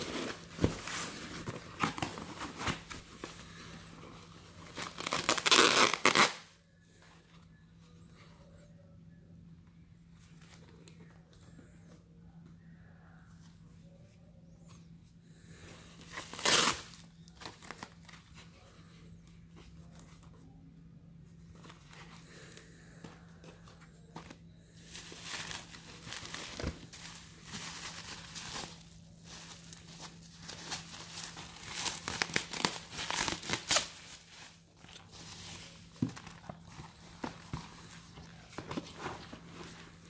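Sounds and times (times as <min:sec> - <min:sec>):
bubble wrap crinkling: 0:04.2 - 0:06.5, 0:16.1 - 0:18.3, 0:24.1 - 0:40.0.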